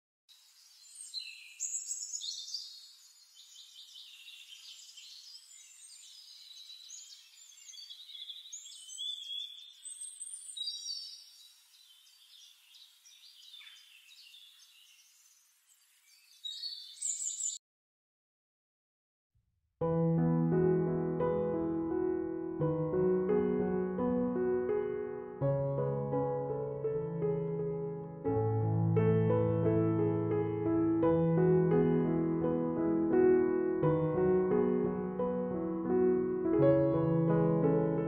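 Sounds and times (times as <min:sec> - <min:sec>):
songbirds chirping and singing: 0:00.4 - 0:17.6.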